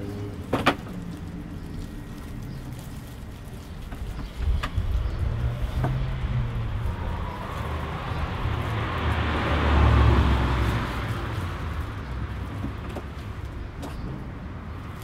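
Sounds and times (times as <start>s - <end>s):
steady low rumble: 0.9s - 9.2s
car passing by: 4.7s - 12.4s.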